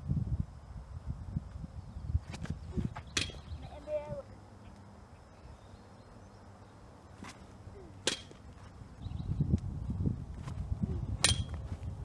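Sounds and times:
wind rumbling on microphone: 0.0s - 4.3s, 8.6s - 12.0s.

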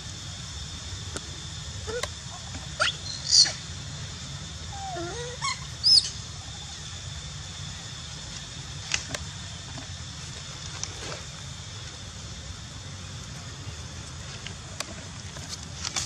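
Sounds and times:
monkey wavering call: 1.8s - 3.7s, 4.7s - 6.8s
monkey high-pitched squeals: 1.9s - 2.1s, 2.8s - 3.6s, 4.7s - 6.2s.

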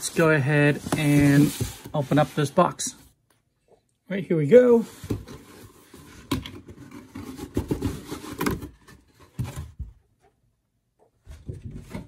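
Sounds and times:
cardboard scraping on cardboard: 0.0s - 2.7s.

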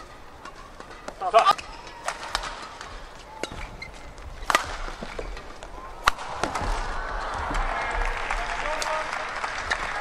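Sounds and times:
rackets hitting shuttlecock: 0.0s - 7.7s
arena crowd noise: 5.4s - 10.0s.

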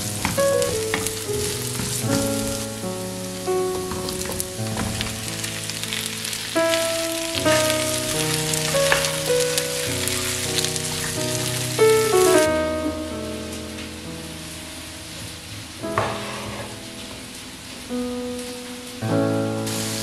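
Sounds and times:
vegetables sizzling in butter: 0.0s - 12.5s, 19.6s - 20.0s.

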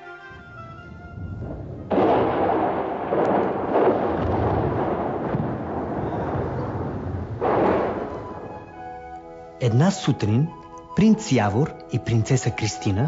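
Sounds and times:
thunder rumbling and cracking: 0.7s - 9.0s.

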